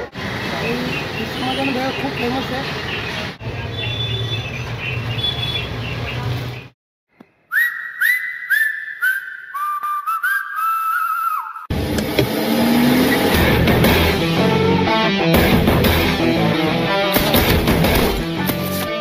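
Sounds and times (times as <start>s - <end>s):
busy street background: 0.0s - 6.8s
swooping whistle tones: 7.5s - 11.7s.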